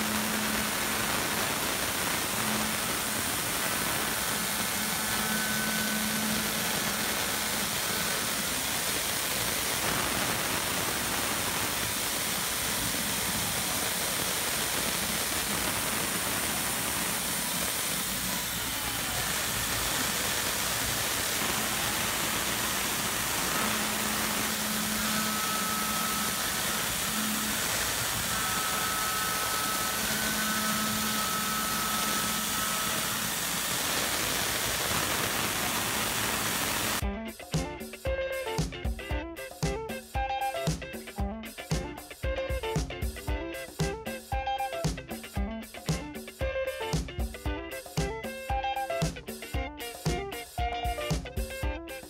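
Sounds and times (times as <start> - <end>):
mill spindle cutting metal: 0.0 - 37.0
mist coolant hiss: 0.0 - 37.0.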